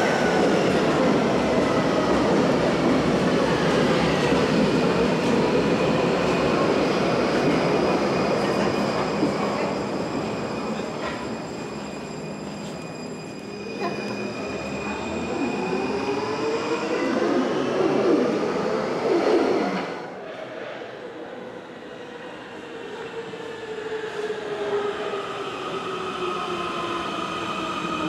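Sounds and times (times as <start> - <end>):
train braking: 6.4 - 20.0.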